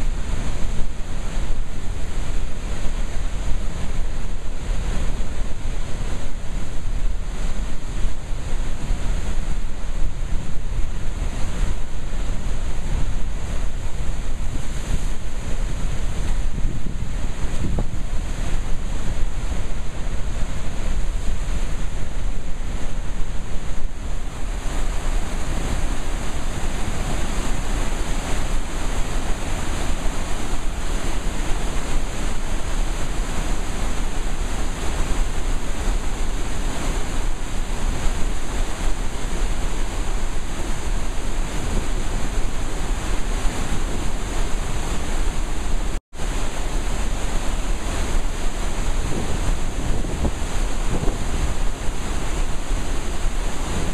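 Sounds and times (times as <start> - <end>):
water rushing from dam outlet: 0.0 - 53.9
wind buffeting microphone: 0.0 - 53.9.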